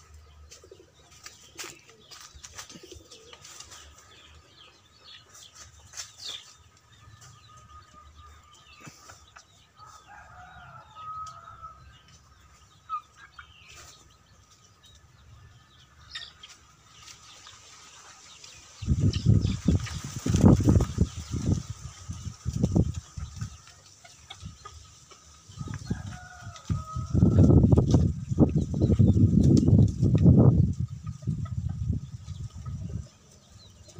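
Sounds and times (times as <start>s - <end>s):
distant rooster crowing: 9.8s - 11.9s, 25.6s - 27.6s
wind rumble on microphone: 18.8s - 23.7s, 25.5s - 33.9s.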